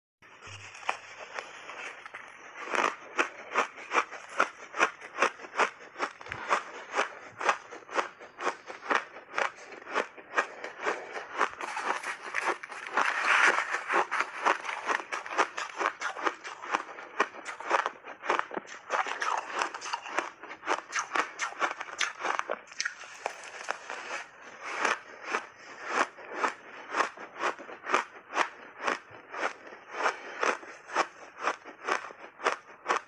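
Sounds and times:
chewing crunchy ice: 0:00.3 - 0:33.0.

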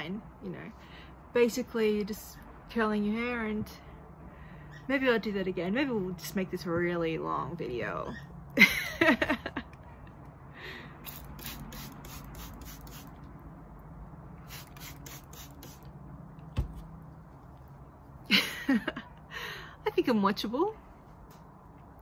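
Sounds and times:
spray bottle spritzing water: 0:11.0 - 0:13.2, 0:14.4 - 0:15.9.

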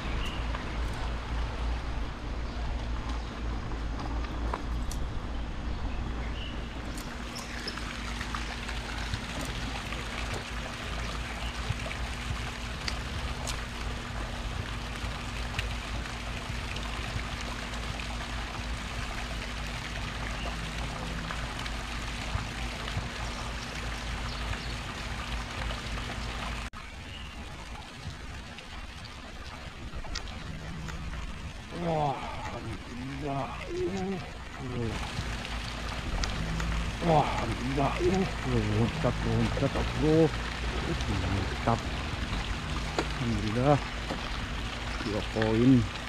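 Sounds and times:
water trickling in a ditch: 0:00.0 - 0:05.4, 0:06.1 - 0:46.0
faint steady hum: 0:00.0 - 0:46.0.

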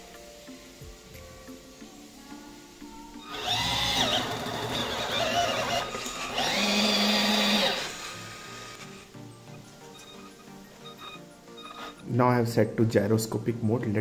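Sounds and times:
toy truck motor whining: 0:03.2 - 0:09.1, 0:09.9 - 0:12.0.

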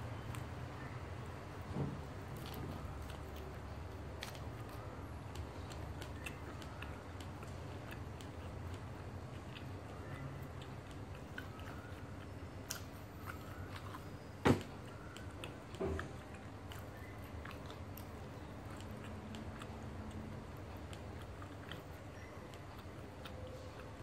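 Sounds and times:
chewing close up: 0:02.2 - 0:24.0
mouth and finger ticks: 0:04.2 - 0:13.8, 0:14.8 - 0:24.0.

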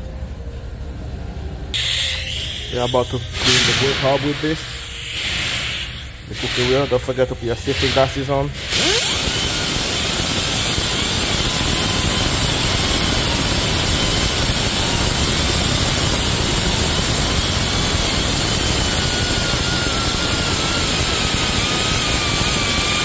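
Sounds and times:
die grinder grinding metal: 0:07.7 - 0:23.0.

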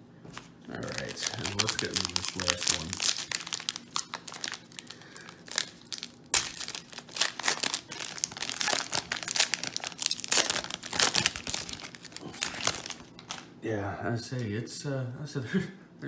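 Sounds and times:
plastic wrapper crinkling: 0:00.7 - 0:13.5.

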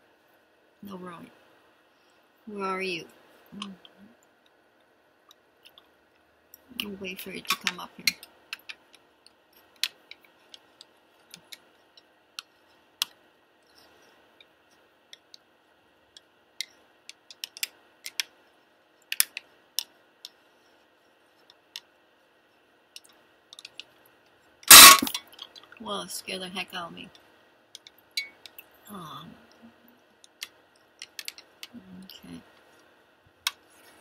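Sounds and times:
faint steady hiss: 0:00.0 - 0:34.0
light clicks and ticks: 0:29.5 - 0:34.0.

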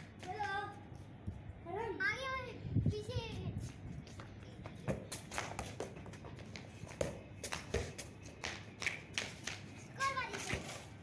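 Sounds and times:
scuffing footsteps on concrete: 0:03.2 - 0:11.0
football tapping on concrete: 0:04.2 - 0:09.6.

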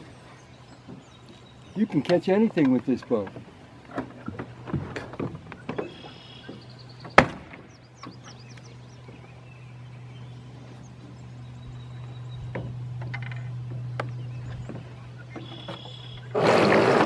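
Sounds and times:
steady low hum: 0:00.0 - 0:17.0
bird chirps: 0:05.5 - 0:16.4.

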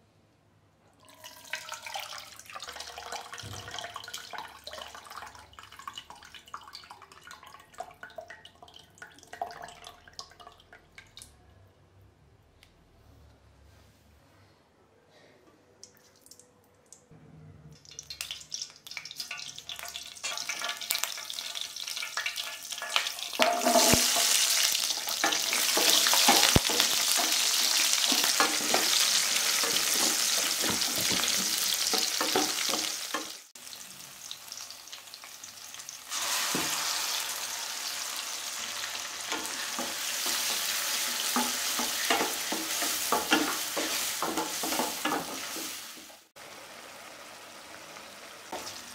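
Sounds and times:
food sizzling in hot oil: 0:17.9 - 0:48.9
spatula stirring: 0:22.4 - 0:33.4.

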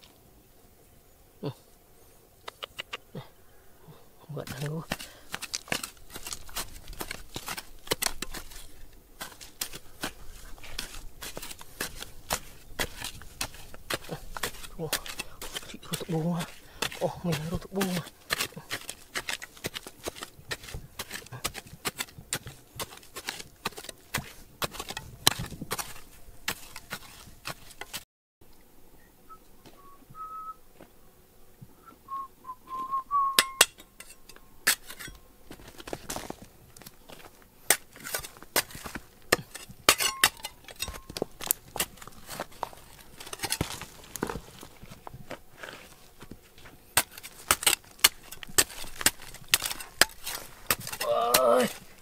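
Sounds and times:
faint wavering whistle-like tone: 0:29.0 - 0:30.6, 0:31.8 - 0:33.7.

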